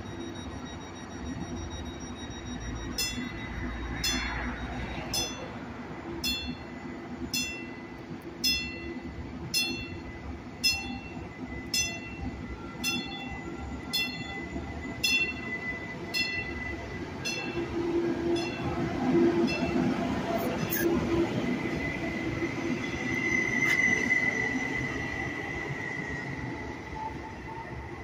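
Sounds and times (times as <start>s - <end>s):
bell ringing: 0.0s - 5.5s, 7.3s - 21.0s
diesel train humming: 0.0s - 28.0s.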